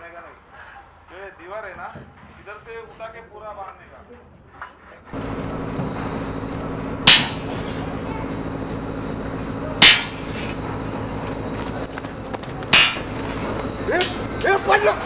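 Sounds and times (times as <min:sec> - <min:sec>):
steady low hum: 0:05.1 - 0:15.0
sledgehammer clanging on steel: 0:07.0 - 0:07.8, 0:09.8 - 0:10.5, 0:12.7 - 0:14.9.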